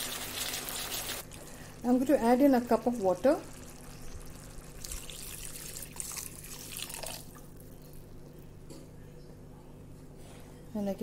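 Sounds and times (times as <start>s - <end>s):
curry bubbling: 0.0s - 8.1s
water poured into a pan: 3.6s - 7.5s.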